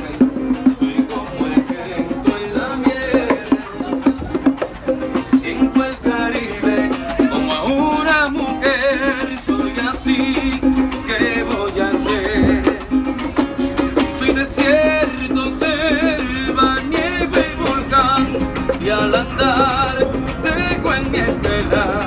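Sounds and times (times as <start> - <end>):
strummed strings latin rhythm: 0.0 - 22.0
person singing: 5.1 - 13.1, 13.7 - 22.0.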